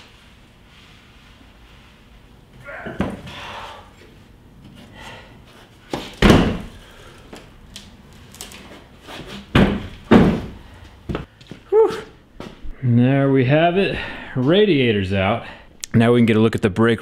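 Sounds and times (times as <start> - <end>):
heavy knocks on concrete floor: 9.5 - 11.3.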